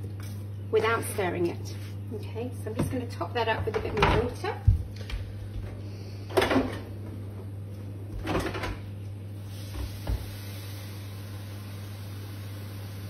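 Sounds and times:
low electrical hum: 0.0s - 13.0s
kitchen knocks and clunks: 2.7s - 4.9s, 6.3s - 6.9s, 8.1s - 8.8s.

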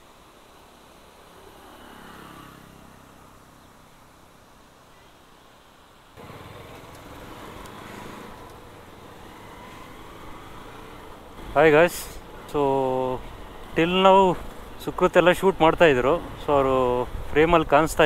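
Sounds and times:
road noise: 0.0s - 18.0s
vehicle engine passing: 1.4s - 3.6s, 6.2s - 14.6s.

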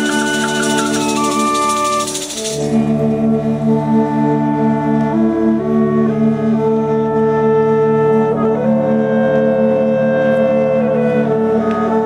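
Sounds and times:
wind band with folk instruments: 0.0s - 12.0s.

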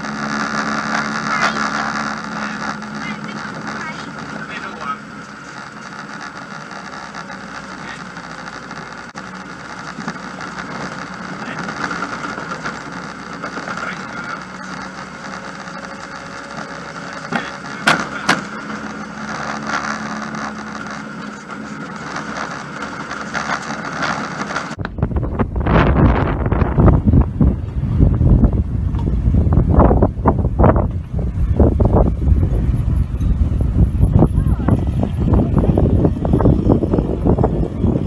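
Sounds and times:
car engine and road rumble: 0.0s - 38.0s.

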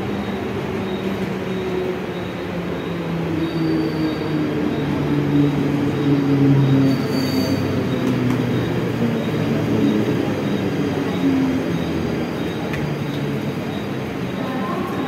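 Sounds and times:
train traction motors humming: 0.0s - 15.0s
wheel and rail rumble: 0.0s - 15.0s
thin high squeal: 6.8s - 7.7s.

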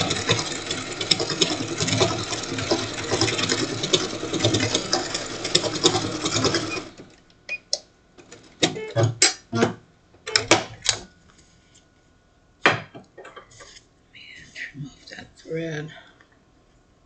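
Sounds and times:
sewing machine running: 0.0s - 7.2s.

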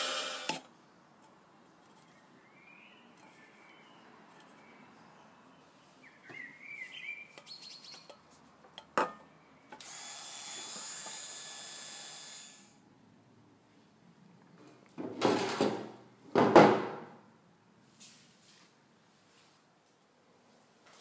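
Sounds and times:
rotary tool whining: 0.0s - 0.7s, 9.7s - 12.8s
bird chirping: 2.0s - 8.2s.

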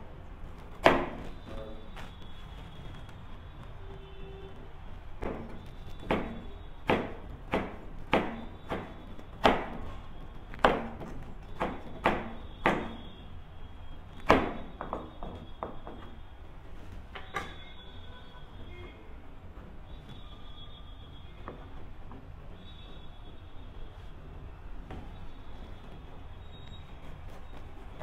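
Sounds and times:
knife chopping on plastic board: 0.8s - 1.4s, 5.2s - 13.1s.

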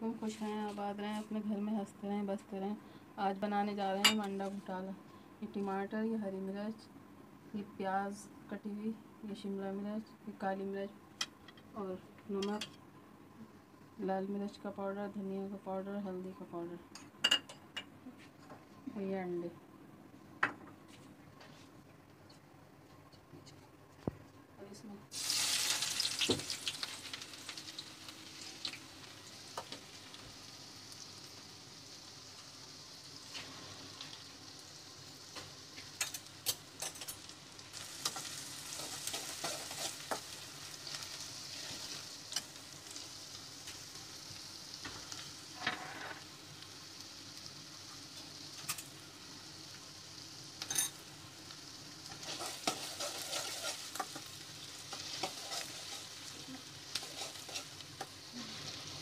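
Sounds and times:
onions sizzling in hot oil: 25.1s - 59.0s
spoon scraping a metal pan: 52.2s - 54.2s, 54.9s - 56.1s, 57.0s - 57.8s.

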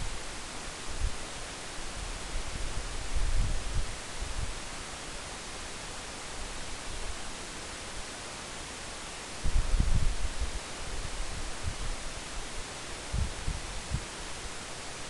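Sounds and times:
low rumble of gusts: 0.0s - 4.7s, 9.4s - 15.0s
steady hiss: 0.0s - 15.0s
wind buffeting microphone: 2.0s - 4.6s, 9.4s - 12.1s, 13.0s - 14.1s.

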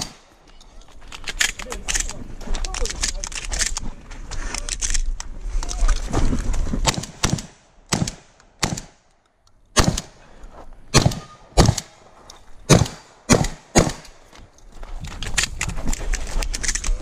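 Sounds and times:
shotgun shots: 0.0s - 0.3s, 6.8s - 9.0s, 9.8s - 10.2s, 10.9s - 12.0s, 12.7s - 14.2s.

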